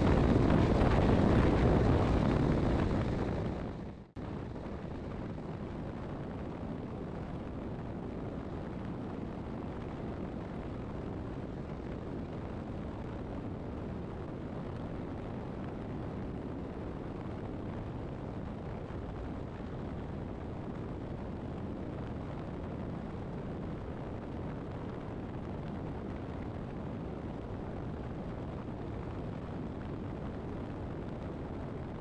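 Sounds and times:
wind rushing: 0.0 - 4.1.

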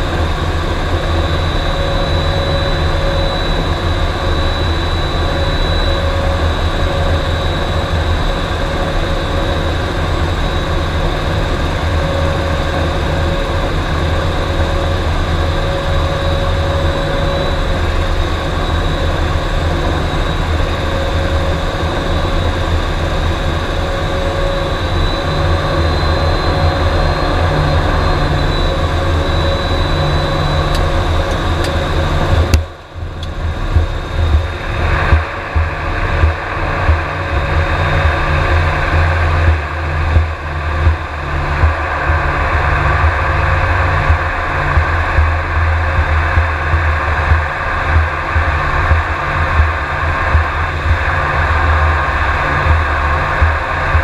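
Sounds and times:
high engine whine: 0.0 - 54.0
turboprop engines droning: 0.0 - 54.0.

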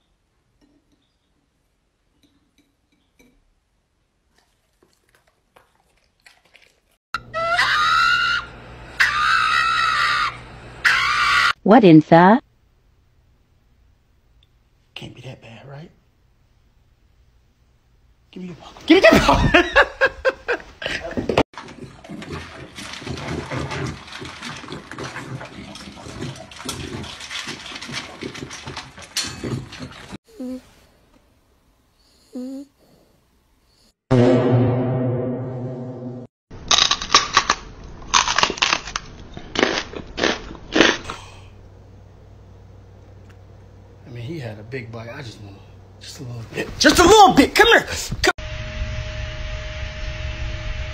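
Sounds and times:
dog screaming: 7.2 - 11.6
dog chewing dry kibble: 21.6 - 30.1
steady hum: 48.4 - 50.9.

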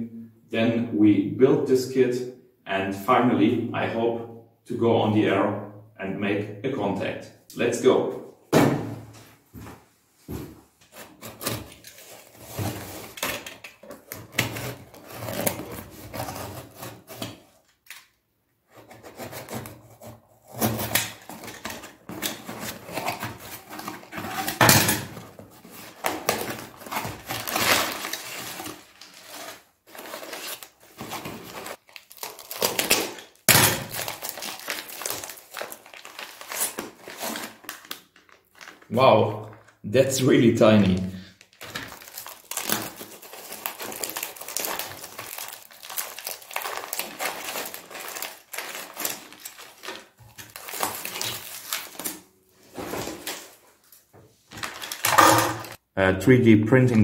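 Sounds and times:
crumpled paper rustling: 10.9 - 17.4, 18.9 - 39.8, 40.6 - 55.8
utility knife slitting cardboard: 10.9 - 17.5, 18.8 - 33.2
plastic bags crinkling: 21.2 - 39.8, 40.7 - 55.8.

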